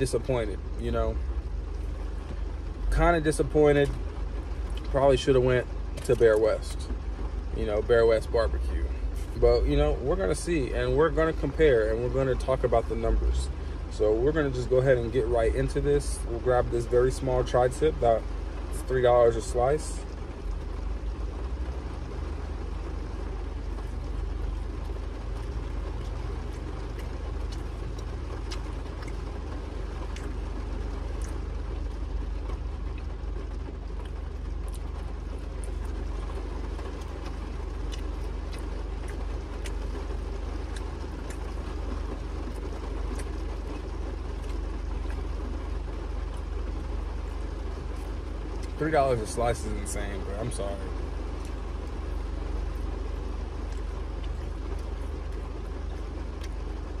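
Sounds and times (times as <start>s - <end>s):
car cabin hum and hiss: 0.0s - 57.0s.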